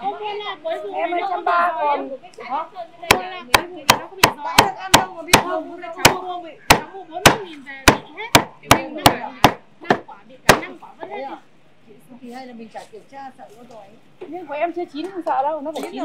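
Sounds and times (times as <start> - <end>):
cleaver chopping on wooden block: 3.1 - 10.7.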